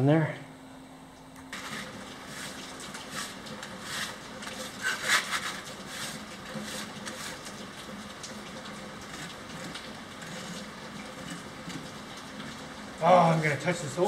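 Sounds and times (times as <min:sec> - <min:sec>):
trowel scraping wet mortar: 0:01.6 - 0:07.5.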